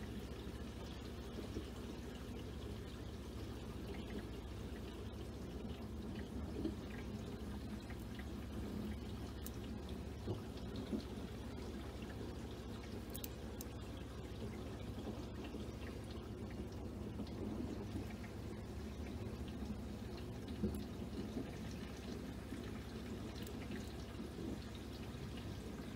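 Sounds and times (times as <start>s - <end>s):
aquarium filter hum: 0.0s - 25.9s
water trickling: 0.0s - 25.9s
faint clicks: 9.3s - 11.1s, 12.8s - 13.8s.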